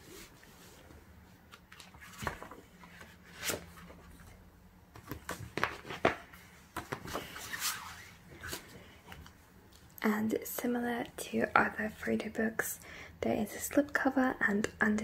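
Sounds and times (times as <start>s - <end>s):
paper rustling: 1.5s - 4.3s
paper slipcover sliding off book: 7.0s - 8.8s.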